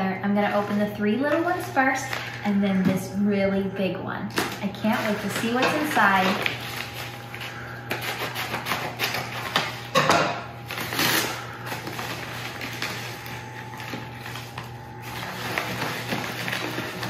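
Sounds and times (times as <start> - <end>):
paper tearing and rustling: 4.4 - 9.9, 10.6 - 17.0
scissors cutting paper: 4.4 - 9.9, 10.7 - 17.0.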